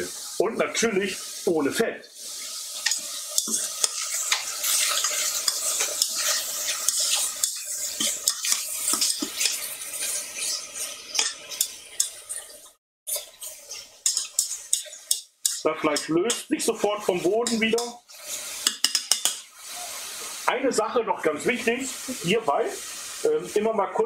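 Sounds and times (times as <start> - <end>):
meat sizzling in a pot: 0.0 - 24.0
utensil scraping a metal pot: 2.4 - 16.4.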